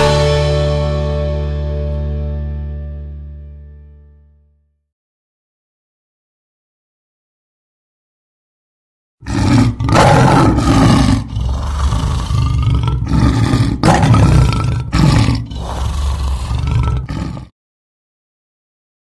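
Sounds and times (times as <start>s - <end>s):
lion roaring and growling: 9.2s - 17.5s.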